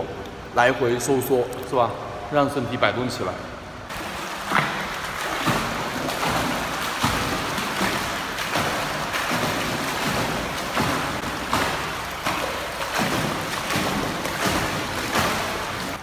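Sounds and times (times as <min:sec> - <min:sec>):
water splashing from kicks: 0:03.9 - 0:16.0.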